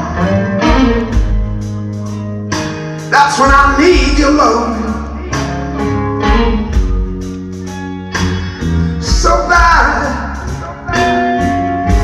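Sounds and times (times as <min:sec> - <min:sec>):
electric guitar bending notes: 0:00.0 - 0:09.6
bass guitar: 0:00.0 - 0:12.0
drum kit: 0:00.0 - 0:12.0.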